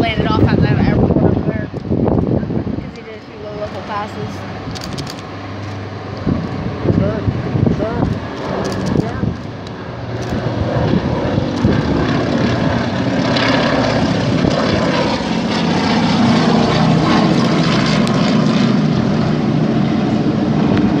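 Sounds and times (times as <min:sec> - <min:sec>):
propeller plane droning overhead: 0:00.0 - 0:21.0.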